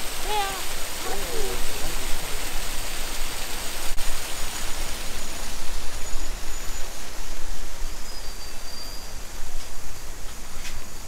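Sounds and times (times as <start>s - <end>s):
water gushing and splashing: 0.0s - 6.0s.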